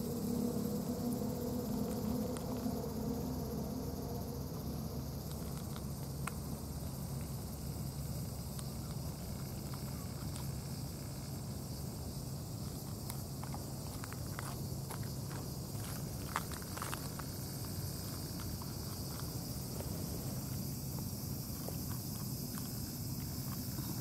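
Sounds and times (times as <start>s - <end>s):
high insect drone: 0.0s - 24.0s
low background rumble: 0.0s - 24.0s
cat crunching dry kibble: 5.2s - 11.6s, 12.5s - 24.0s.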